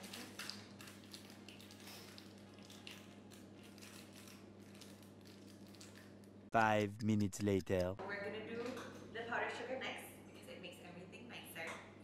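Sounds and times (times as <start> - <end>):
low steady hum: 6.0 - 8.4.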